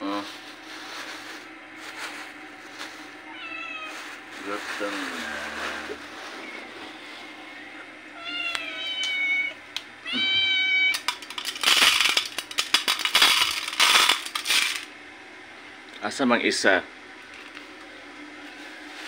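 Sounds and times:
cats meowing: 3.2 - 4.2, 8.1 - 11.1
dry cat food rattling onto tray: 11.0 - 14.9.

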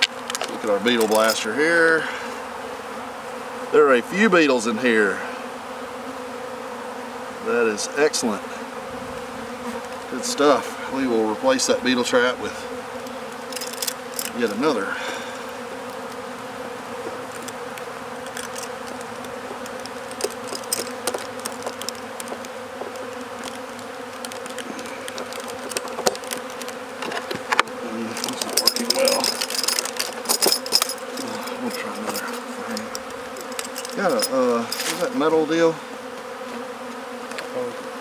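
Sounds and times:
bees buzzing: 0.0 - 38.0
metal tool scraping wooden frames: 17.0 - 35.2.

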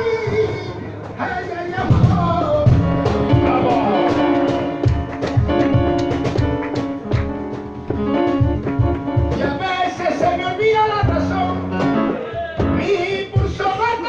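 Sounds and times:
flamenco music: 0.0 - 14.0
rhythmic hand claps: 1.0 - 14.0.

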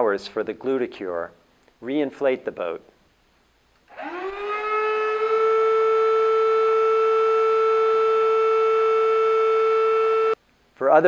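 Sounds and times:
electric air pump whining: 3.8 - 10.4.

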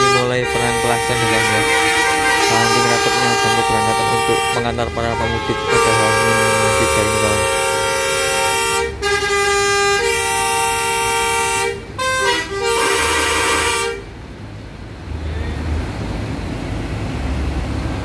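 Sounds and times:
bus horns blaring: 0.0 - 14.2
bus engines rumbling: 0.0 - 18.0
traffic: 0.0 - 18.0.

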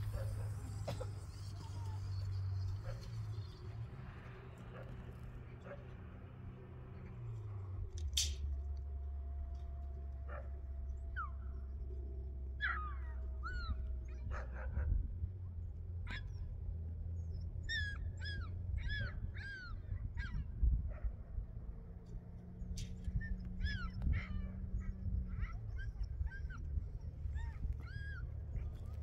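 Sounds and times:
steady low hum: 0.0 - 29.0
dog whimpering and yelping: 12.6 - 14.8, 16.1 - 16.5, 17.2 - 21.1, 23.0 - 29.0.

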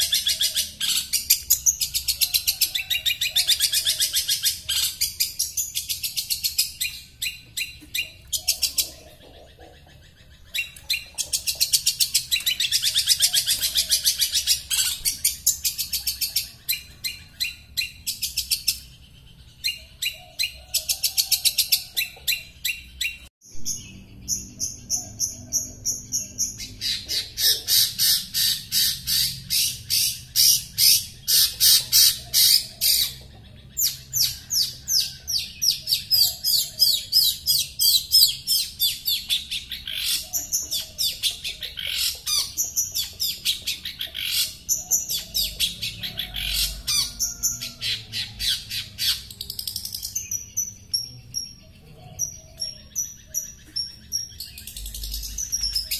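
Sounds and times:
bird chattering song: 0.0 - 55.9.

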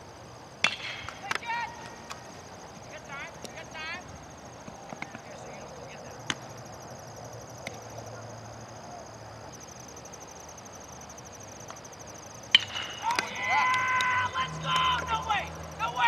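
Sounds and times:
high insect chirr: 0.0 - 16.0
baseball bat cracking ball: 0.6 - 2.2, 12.5 - 15.1
shouting voices: 13.0 - 16.0.

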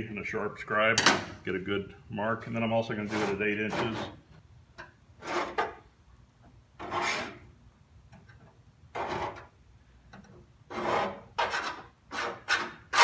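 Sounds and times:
steel scribe scratching sheet steel: 3.0 - 4.2, 5.2 - 5.8, 6.8 - 7.5, 10.7 - 13.0.

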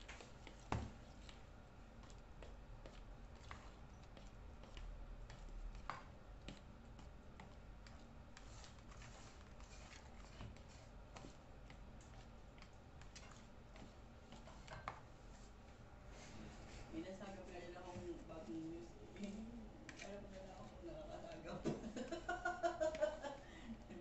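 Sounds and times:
spoon scraping mixing bowl: 2.8 - 15.7, 16.7 - 21.5.

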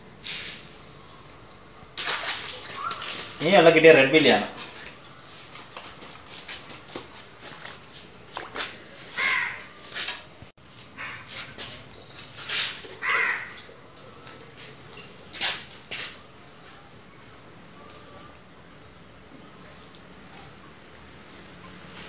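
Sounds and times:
birds chirping: 0.0 - 15.6, 16.2 - 22.0
water and net splashing in tank: 1.9 - 5.0, 5.6 - 9.2
harsh bird calls: 2.4 - 6.3, 7.6 - 13.8.

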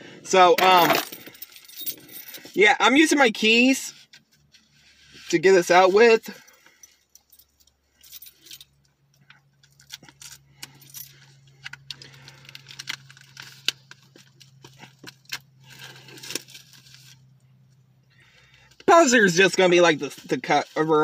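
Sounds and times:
keys jangling: 0.7 - 2.6.

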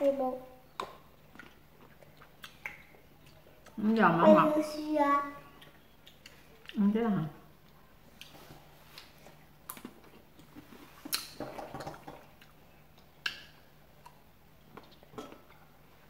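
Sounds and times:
faint steady hum: 0.0 - 16.0
wet chewing: 0.7 - 4.0, 5.5 - 6.9, 7.6 - 15.8.

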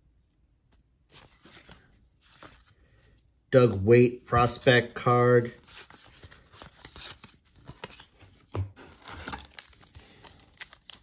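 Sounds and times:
trading cards rustling and clicking: 1.1 - 11.0
wrapper crinkling: 8.8 - 11.0.

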